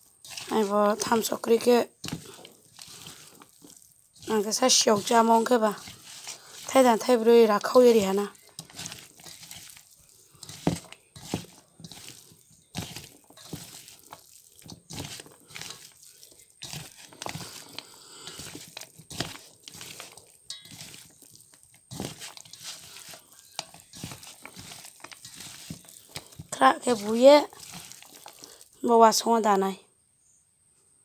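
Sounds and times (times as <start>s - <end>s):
wet squelches of mixing meat: 0.0s - 29.6s
crunchy clicks against metal bowl: 16.6s - 28.4s.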